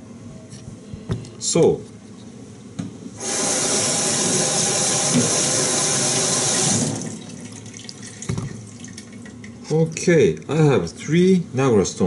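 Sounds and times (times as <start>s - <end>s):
tap water running into sink: 3.2s - 9.6s.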